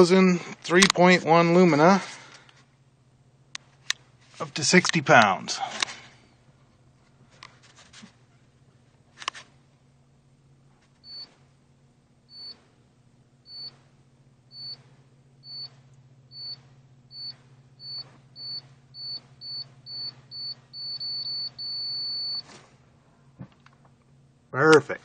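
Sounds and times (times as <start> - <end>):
low steady hum: 0.0 - 25.0
steady beep: 12.3 - 12.6, 13.5 - 13.8, 14.5 - 14.8, 15.4 - 22.4
short high beeps: 17.2 - 22.4.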